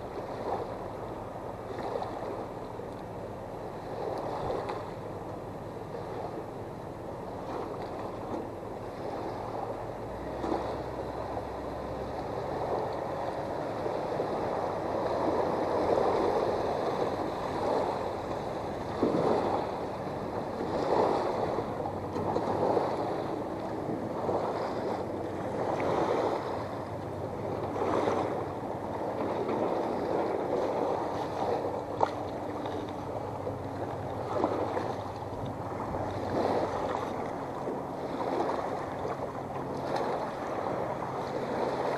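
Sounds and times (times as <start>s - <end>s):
water lapping against boat hull: 0.0s - 41.9s
small waves lapping on stones: 18.8s - 19.8s, 27.5s - 41.9s.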